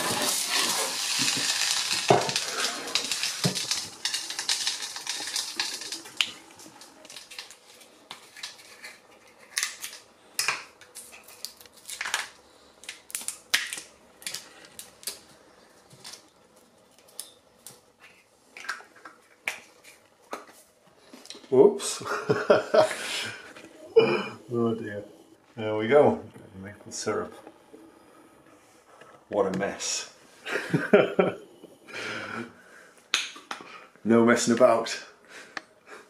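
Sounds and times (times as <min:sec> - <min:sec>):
frying pan sizzling: 0:00.0 - 0:07.9.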